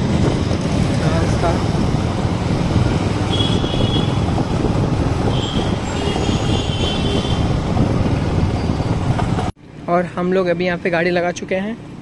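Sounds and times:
wind on microphone: 0.0s - 9.5s.

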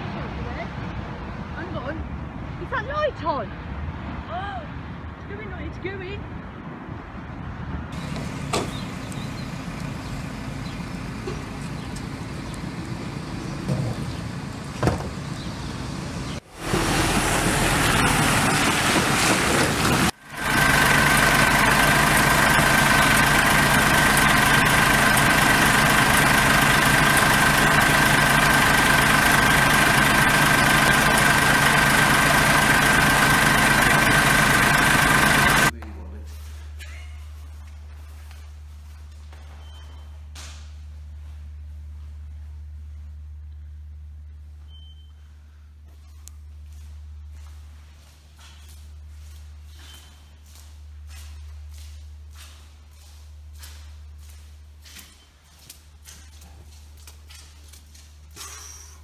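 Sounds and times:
truck engine with high whine: 7.8s - 35.8s, 36.6s - 59.0s.

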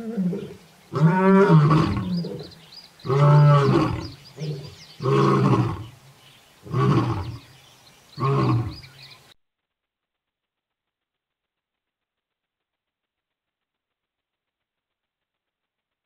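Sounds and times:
lion roaring: 0.0s - 6.0s, 6.6s - 7.4s, 8.2s - 8.9s.

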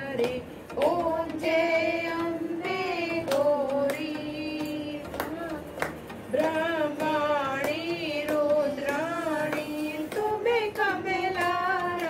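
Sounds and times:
hand claps: 0.0s - 12.0s
women singing a hymn: 0.0s - 12.0s.

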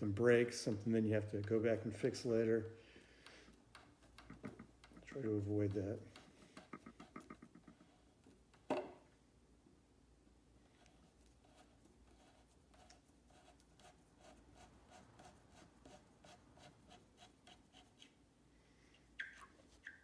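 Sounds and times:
screw ticking in wood: 3.2s - 7.8s.

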